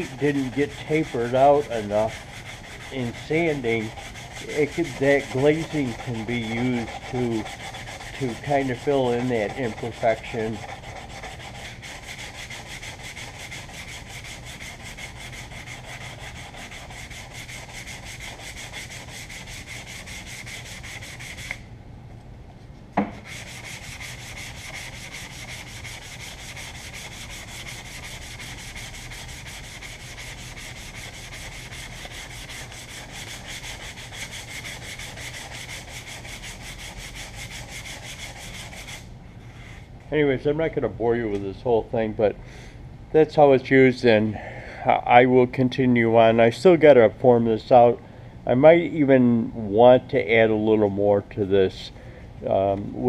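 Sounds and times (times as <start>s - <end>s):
hand sanding with sandpaper: 0.0s - 21.6s, 23.2s - 39.1s.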